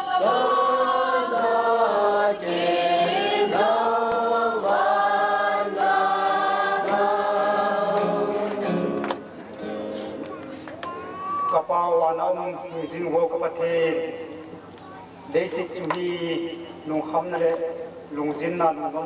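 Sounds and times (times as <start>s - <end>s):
voices singing together: 0.0s - 9.3s.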